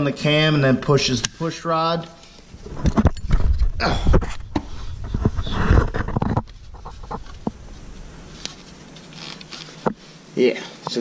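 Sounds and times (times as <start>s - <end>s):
handheld camera rubbing and knocking: 2.2s - 10.1s.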